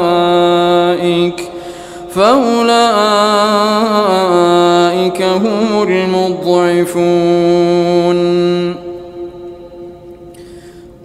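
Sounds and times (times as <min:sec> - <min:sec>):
chanted recitation: 0:00.0 - 0:10.3
soft breath drawn: 0:01.6 - 0:02.1, 0:10.3 - 0:11.0.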